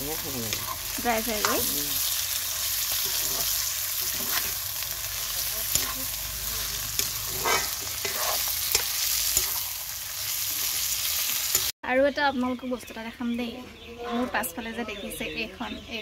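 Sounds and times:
meat sizzling in a wok: 0.0s - 11.8s
metal ladle scraping a pan: 2.8s - 4.7s, 5.6s - 10.9s, 14.0s - 14.6s.

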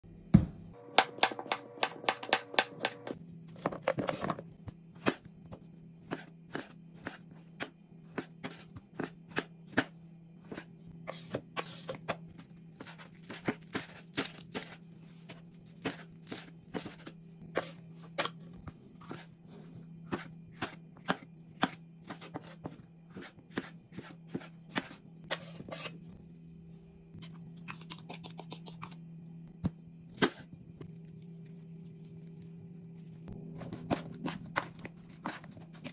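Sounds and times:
steady low hum: 0.0s - 35.9s
knife chopping on wooden board: 0.4s - 3.2s.

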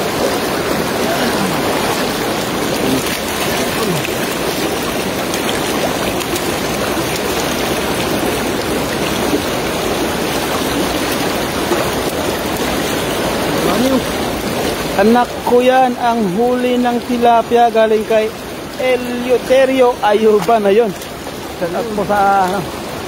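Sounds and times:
water rushing: 0.0s - 23.0s.

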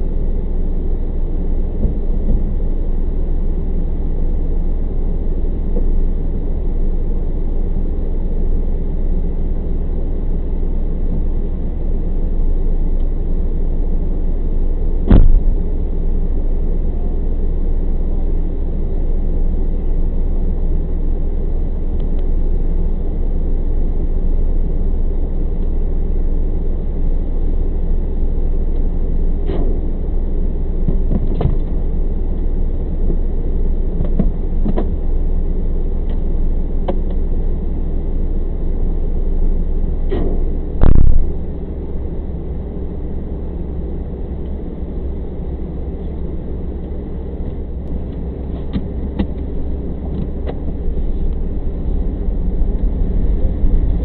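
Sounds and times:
vehicle engine idling: 0.0s - 54.0s
loud thump: 15.1s - 15.5s, 40.1s - 41.4s.

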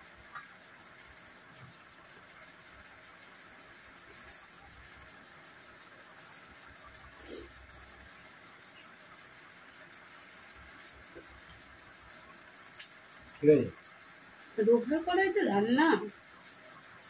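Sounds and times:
faint hiss: 0.0s - 17.0s.

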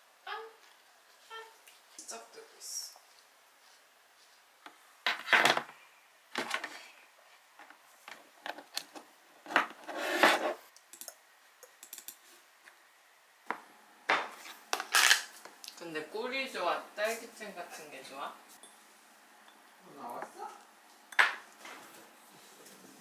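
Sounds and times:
objects rubbing and scraping: 9.4s - 10.7s.

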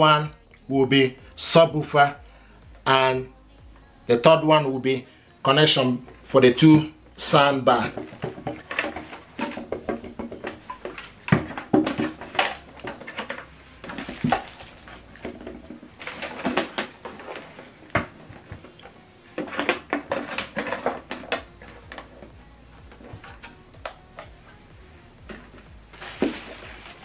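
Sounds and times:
rustling: 7.9s - 27.0s.

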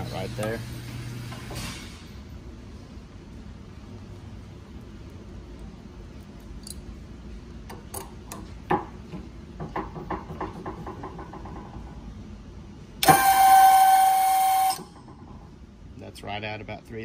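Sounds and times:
hydraulic pump motor whining: 13.0s - 15.0s.

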